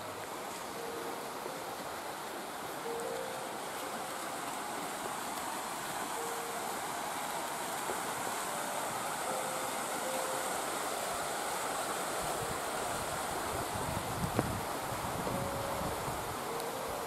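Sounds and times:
water rushing along a channel: 0.0 - 17.0
wind rumbling on microphone: 12.2 - 17.0.

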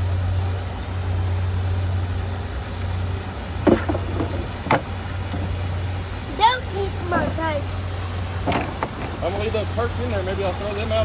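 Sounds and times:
boat motor idling: 0.0 - 11.0
short knocks: 3.6 - 5.6, 8.4 - 9.4.

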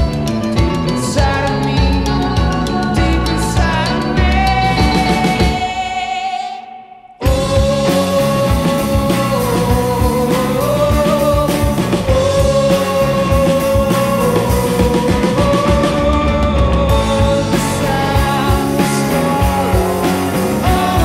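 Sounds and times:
bass guitar: 0.0 - 6.2, 7.2 - 21.0
rock band playing live: 0.0 - 6.2, 7.2 - 21.0
drums: 0.0 - 21.0
person singing: 0.0 - 21.0.

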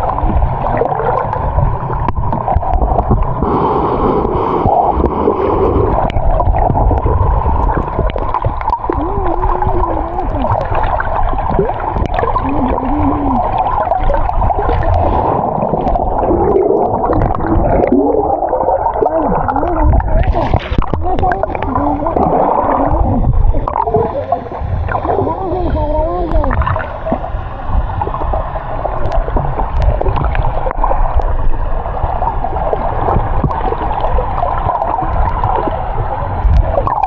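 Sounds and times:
muffled water gurgling: 0.0 - 37.0
wavering low tones: 4.8 - 31.5.

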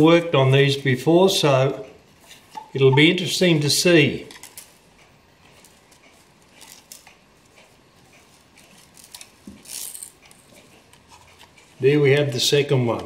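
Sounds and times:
gloved hands rustling: 5.4 - 11.9.

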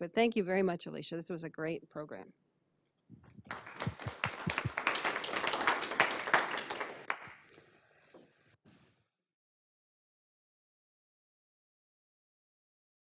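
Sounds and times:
audience applauding: 3.4 - 7.6.

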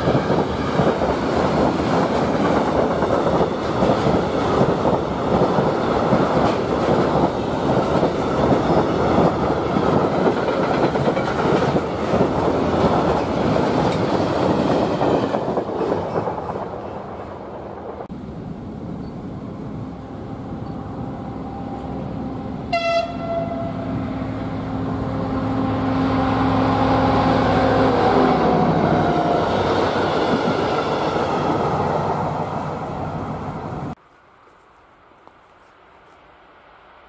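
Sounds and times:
diesel locomotive passing: 0.0 - 34.0
locomotive horn blast: 22.7 - 24.3.

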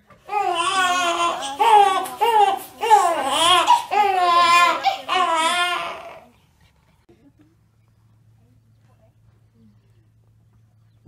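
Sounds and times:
newborn baby crying: 0.3 - 6.4.

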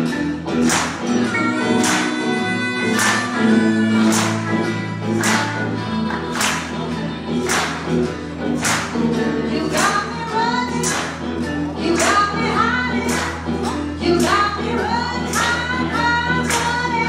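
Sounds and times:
blues band playing: 0.0 - 17.0.

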